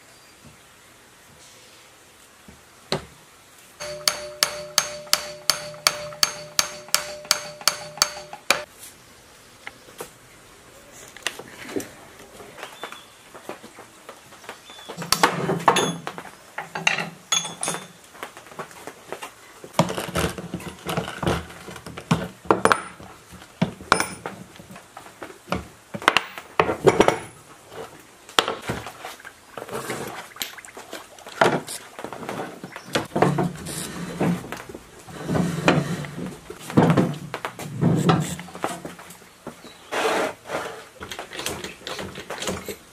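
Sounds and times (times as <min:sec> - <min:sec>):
metal parts clinking and knocking: 0:16.7 - 0:18.0.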